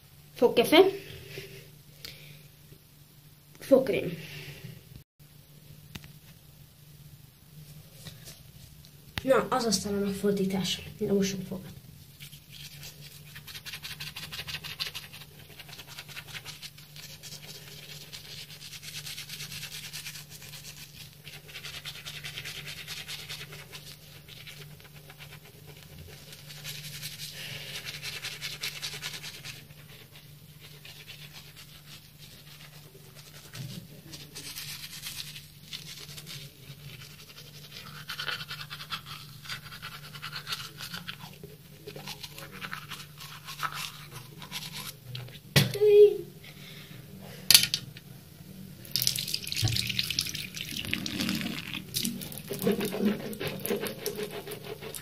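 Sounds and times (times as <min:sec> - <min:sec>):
toothbrush scrubbing teeth: 0:12.1 - 0:45.3, 0:49.6 - 0:55.0.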